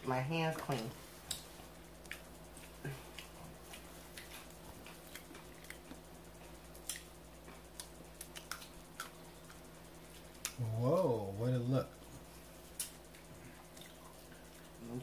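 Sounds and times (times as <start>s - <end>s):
faint steady hum: 0.0s - 15.0s
person chewing: 2.0s - 10.6s, 12.7s - 14.8s.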